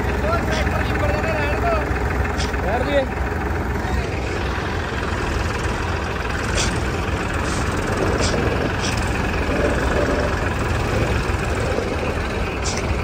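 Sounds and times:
tractor diesel engine running: 0.0s - 13.0s
short hisses: 6.5s - 9.2s.

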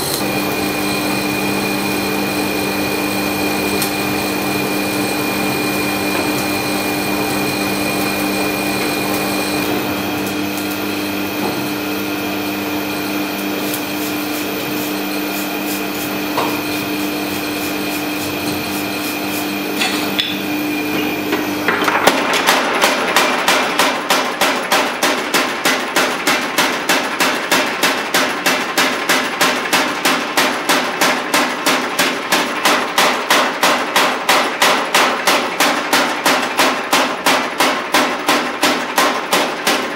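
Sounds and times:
forge burner and blower humming: 0.0s - 39.9s
power hammer pounding hot steel: 0.0s - 39.9s.

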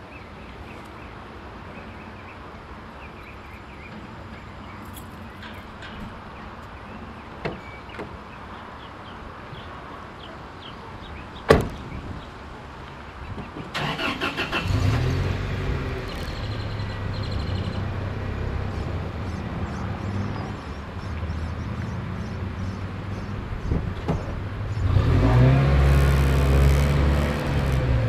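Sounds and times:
truck door slamming: 11.5s - 11.8s
starter cranking: 25.8s - 27.9s.

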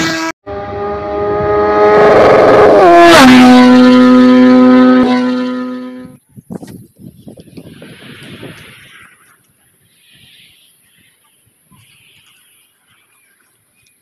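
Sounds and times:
pitched engine-like drone: 0.0s - 6.2s.

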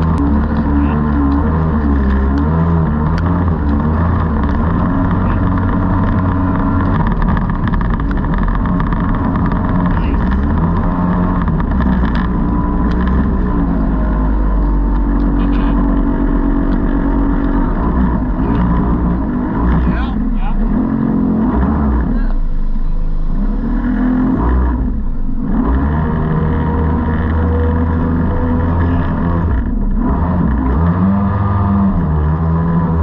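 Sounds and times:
boat engine running: 0.0s - 33.0s
water rushing past hull: 0.0s - 33.0s.

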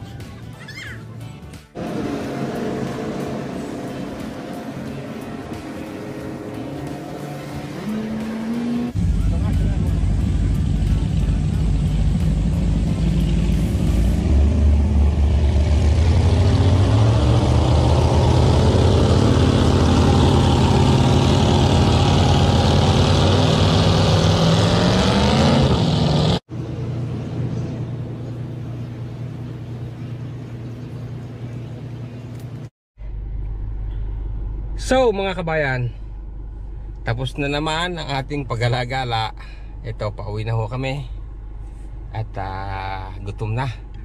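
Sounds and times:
speedboat engine accelerating: 1.7s - 34.8s
low rumble: 9.0s - 24.8s, 26.4s - 38.9s.

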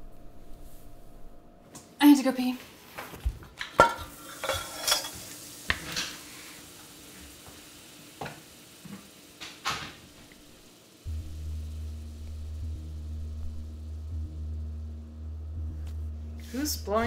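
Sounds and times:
steady low hum: 0.0s - 1.7s, 10.0s - 17.0s
dishes and utensils clinking: 3.6s - 6.2s.

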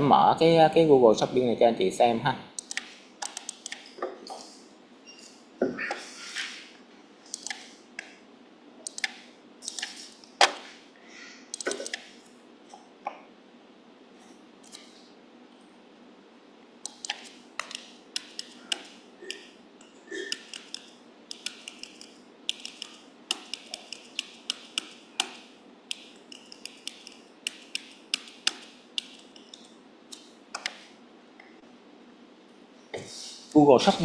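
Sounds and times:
laptop clicks: 2.6s - 3.9s, 16.9s - 19.4s, 20.3s - 30.9s.

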